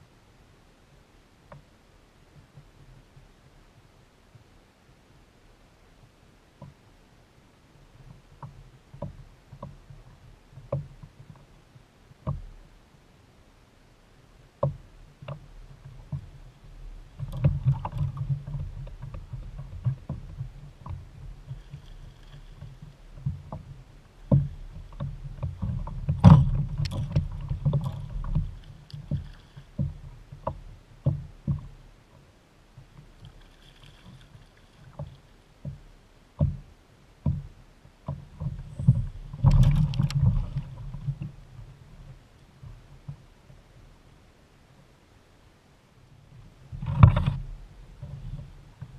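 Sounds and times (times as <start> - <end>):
heavy rumbling thumps: 22.6 - 31.8, 37.3 - 43.6.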